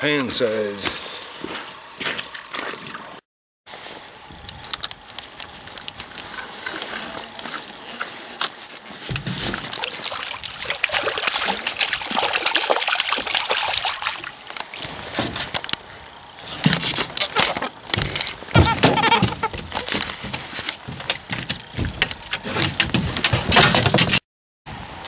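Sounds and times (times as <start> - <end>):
fish thrashing and splashing: 9.3 - 15.9.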